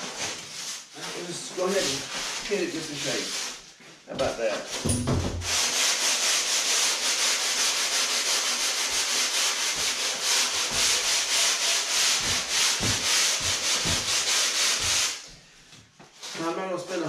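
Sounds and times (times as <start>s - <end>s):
sandpaper rasping on foam: 0.0s - 3.6s, 5.4s - 15.3s.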